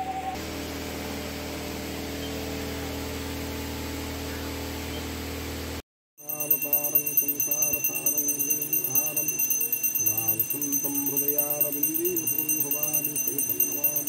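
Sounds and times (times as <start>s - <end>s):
handbell ringing: 6.2s - 14.0s
man chanting: 6.2s - 14.0s.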